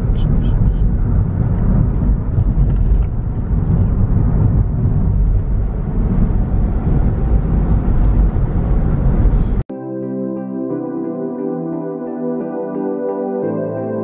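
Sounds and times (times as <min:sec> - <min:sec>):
car road and engine rumble: 0:00.0 - 0:09.7.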